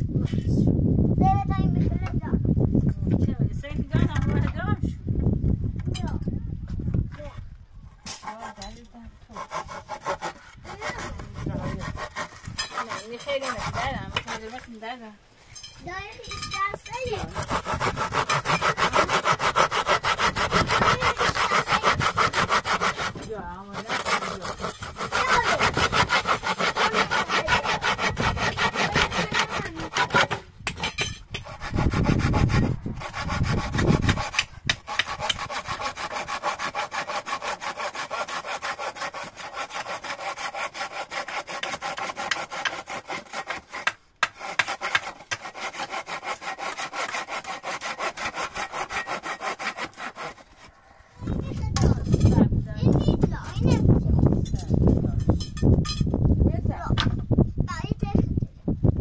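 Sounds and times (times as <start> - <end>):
rasping scraping strokes: 8.0 - 15.5, 16.3 - 56.0.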